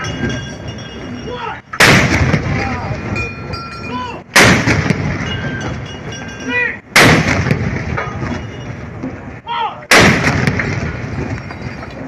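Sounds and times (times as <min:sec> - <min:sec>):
gun salute booms with echo: 0:09.9 - 0:11.3.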